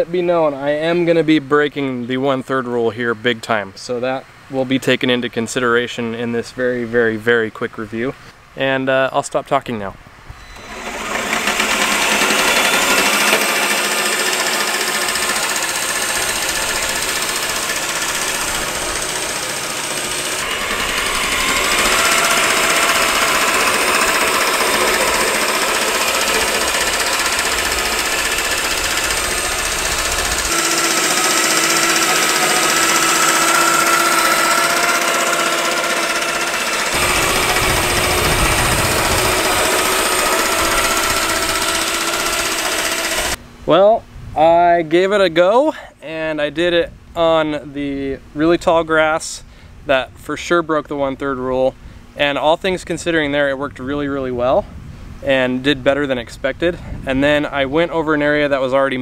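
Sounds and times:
electric reel mower whining: 0:10.4 - 0:43.4.

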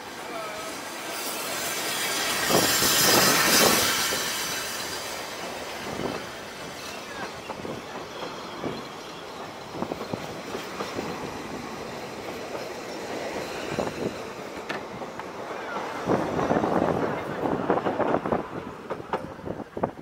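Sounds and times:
train wheels rumbling on track: 0:00.0 - 0:20.0
wheels clacking over rail joints: 0:01.4 - 0:20.0.

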